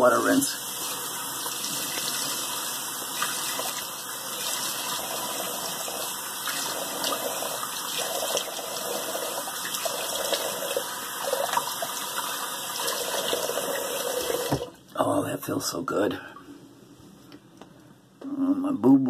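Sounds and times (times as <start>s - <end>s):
water running from tap: 0.0s - 14.7s.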